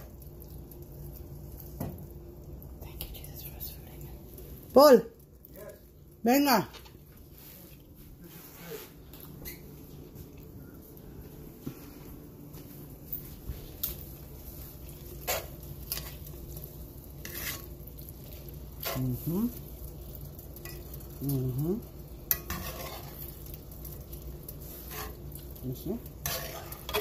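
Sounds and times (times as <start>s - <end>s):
light sizzle: 0.0s - 27.0s
metal tongs scraping a skillet: 14.9s - 19.4s, 20.0s - 21.1s, 22.3s - 27.0s.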